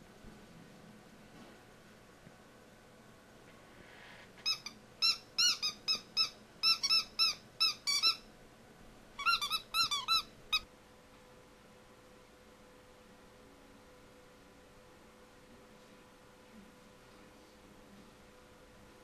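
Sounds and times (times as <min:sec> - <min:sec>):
puppy whining: 0:04.4 - 0:08.2, 0:09.2 - 0:10.6.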